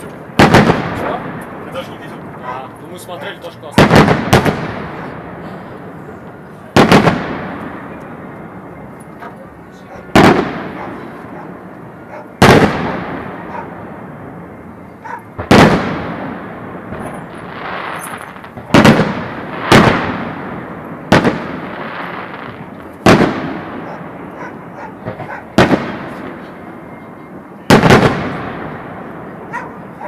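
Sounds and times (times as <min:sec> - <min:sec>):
firework booms with rumble: 0:00.0 - 0:02.5, 0:03.8 - 0:05.9, 0:06.7 - 0:08.2, 0:10.1 - 0:11.7, 0:12.3 - 0:14.4, 0:15.3 - 0:26.4, 0:27.7 - 0:30.0.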